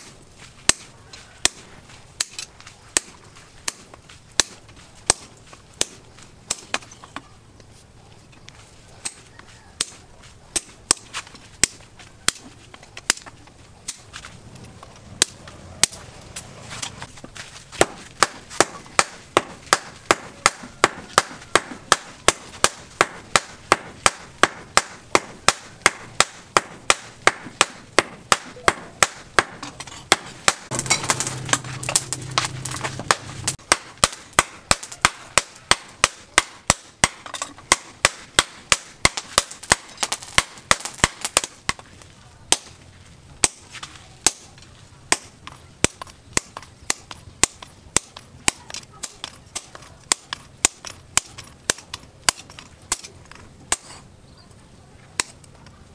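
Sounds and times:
hammer striking steel on anvil: 17.8s - 41.8s.

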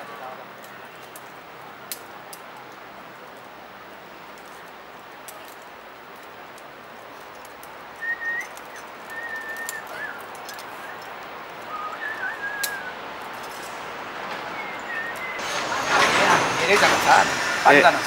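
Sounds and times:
background hiss: 0.0s - 18.0s
faint clicks: 4.3s - 14.4s
thin whistled notes: 8.0s - 13.8s, 14.4s - 16.1s.

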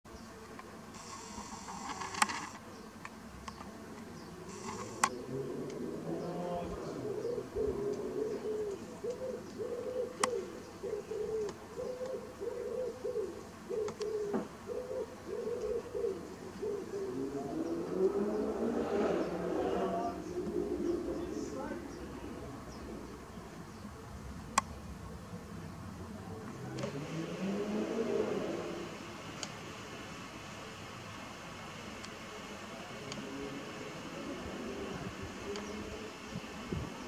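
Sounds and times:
sharp clicks: 4.5s - 5.8s
pigeon cooing: 4.5s - 23.4s.

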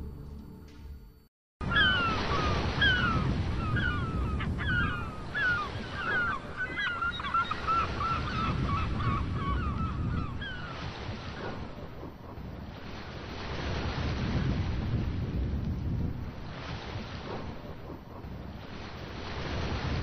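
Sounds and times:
birds calling with falling cries: 1.6s - 11.3s.

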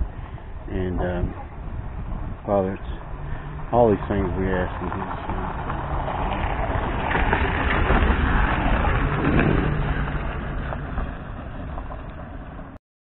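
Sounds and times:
low rumbling microphone noise: 0.0s - 12.8s.

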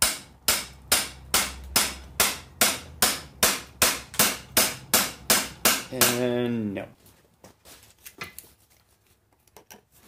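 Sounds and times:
hammer striking metal driver: 0.0s - 6.3s.

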